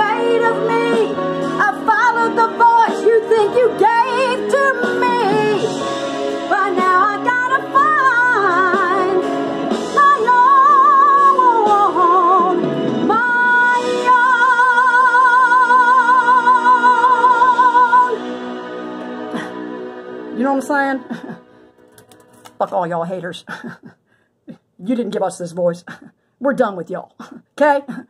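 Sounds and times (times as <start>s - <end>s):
woman singing: 0.0s - 19.6s
backing music: 0.0s - 22.9s.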